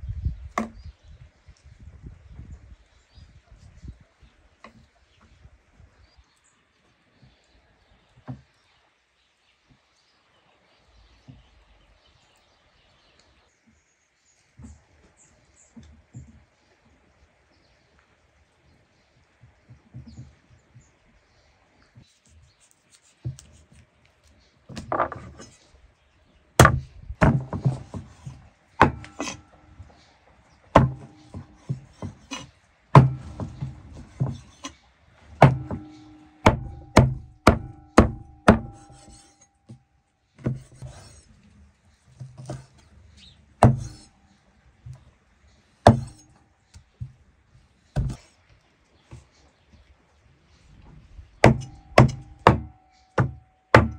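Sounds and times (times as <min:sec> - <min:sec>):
blade chopping on wood: 0:00.6 - 0:00.8, 0:26.6 - 0:29.6, 0:30.8 - 0:34.7, 0:35.4 - 0:39.5, 0:40.4 - 0:41.3, 0:43.6 - 0:44.2, 0:45.8 - 0:46.4, 0:48.0 - 0:48.3, 0:51.4 - 0:53.9.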